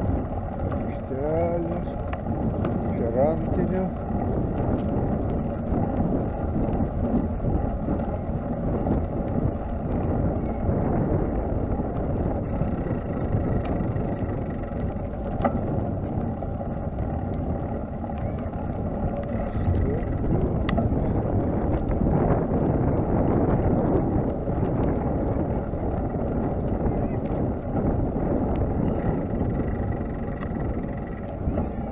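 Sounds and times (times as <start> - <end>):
wheels rolling over brick paving: 0.0 - 31.9
wind buffeting microphone: 0.0 - 31.9
faint clicks: 1.7 - 2.8, 12.4 - 16.2, 28.5 - 31.7.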